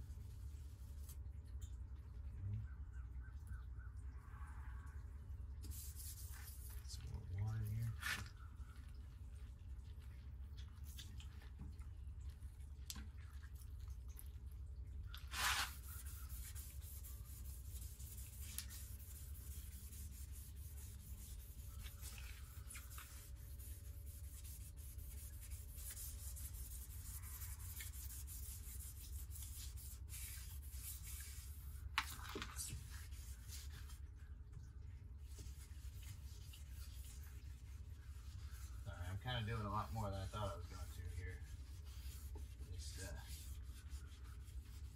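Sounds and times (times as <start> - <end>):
low hum: 0.0 - 6.2
sandpaper rubbing: 5.6 - 6.8, 15.2 - 34.1, 35.2 - 44.9.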